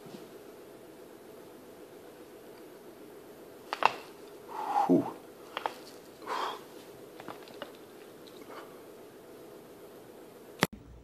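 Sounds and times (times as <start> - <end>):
neck cracking pops: 3.6 - 4.4, 5.4 - 6.2, 7.1 - 8.5
man groaning: 4.6 - 5.2.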